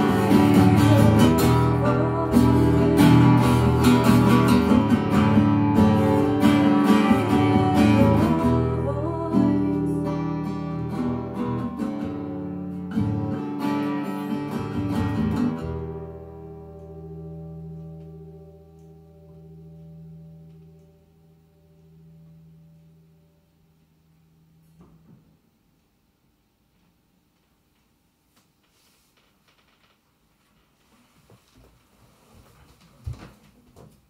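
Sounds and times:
acoustic guitar strumming: 0.0s - 23.5s.

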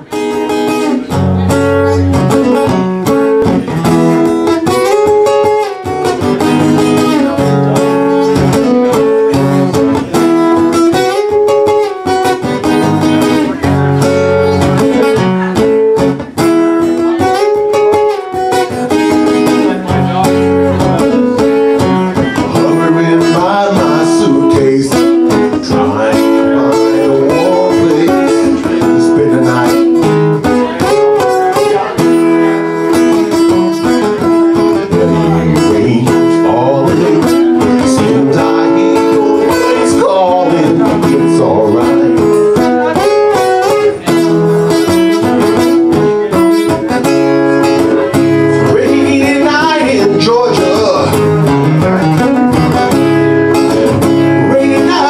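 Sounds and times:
acoustic guitar strumming: 0.0s - 55.0s
man singing: 0.0s - 55.0s.

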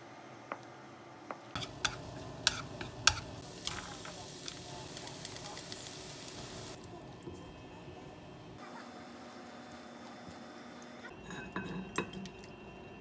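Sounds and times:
food simmering in pan: 1.6s - 6.8s.

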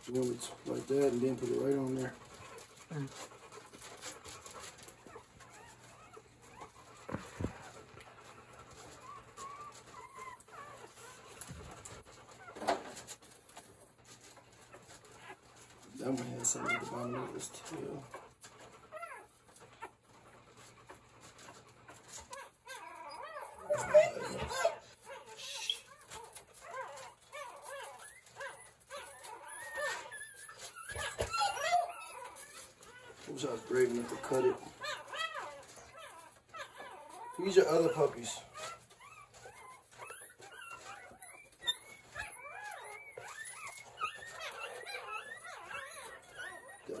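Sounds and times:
puppies squeaking and whining: 0.0s - 47.0s.

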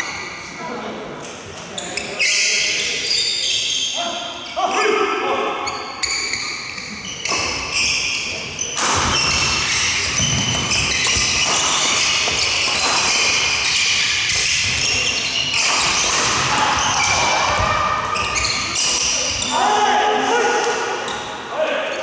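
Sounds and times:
sneakers squeaking on wooden court: 1.7s - 4.6s, 5.6s - 19.5s
racket hitting shuttlecock: 15.6s - 19.1s.

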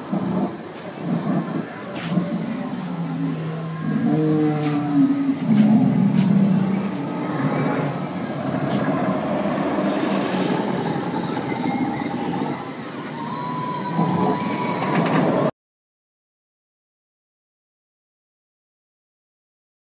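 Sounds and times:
roller coaster train rumbling: 0.0s - 15.5s.

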